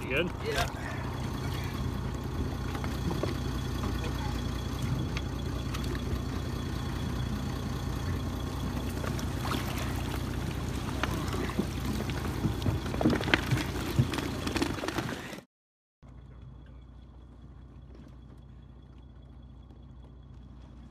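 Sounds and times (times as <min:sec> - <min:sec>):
boat engine idling: 0:00.0 - 0:15.0, 0:16.0 - 0:20.9
water splashing against hull: 0:08.8 - 0:12.9.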